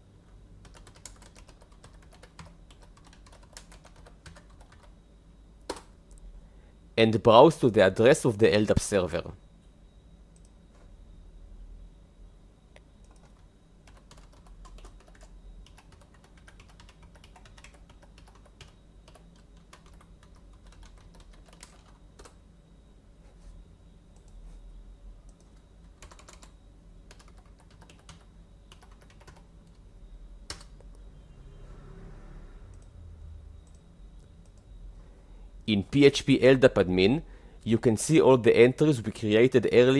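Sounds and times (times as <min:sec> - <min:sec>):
typing on computer keyboard: 0:00.6 - 0:05.0, 0:13.1 - 0:22.4, 0:25.3 - 0:29.5, 0:30.5 - 0:30.7
low hum: 0:29.4 - 0:36.6.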